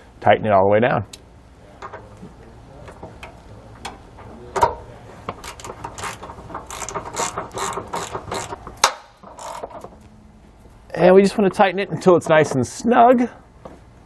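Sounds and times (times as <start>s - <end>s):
socket ratchet clicking: 5.4s - 9.9s.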